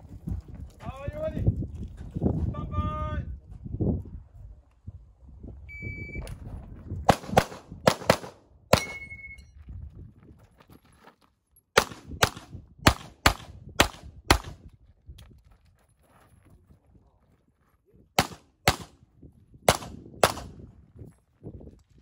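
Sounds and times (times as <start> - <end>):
shot timer beep: 5.7 - 6.3
pistol shots: 7.1 - 9.0, 11.8 - 14.6, 18.2 - 19.0, 19.7 - 20.6.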